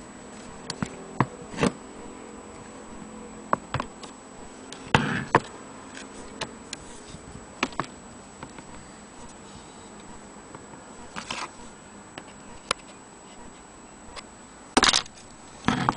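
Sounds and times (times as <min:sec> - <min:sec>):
metal scrape: 0:01.5 - 0:02.1, 0:04.4 - 0:07.3, 0:11.0 - 0:11.8.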